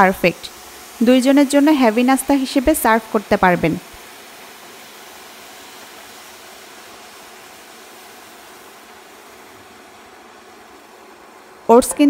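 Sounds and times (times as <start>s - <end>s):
milk sizzling in a pan: 0.0s - 12.0s.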